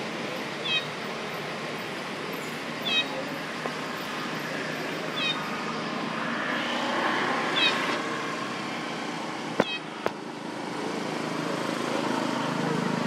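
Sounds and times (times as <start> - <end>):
baby monkey squeak: 2.8 - 3.1, 5.2 - 5.4.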